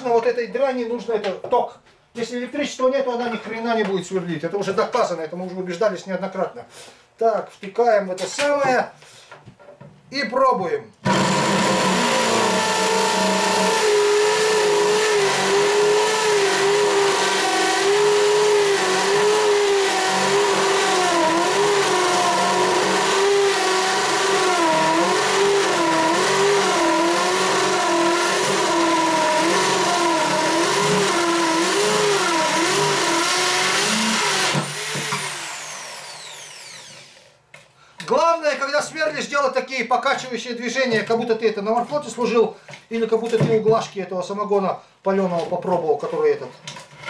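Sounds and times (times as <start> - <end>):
electric drill boring plywood: 11.0 - 37.3.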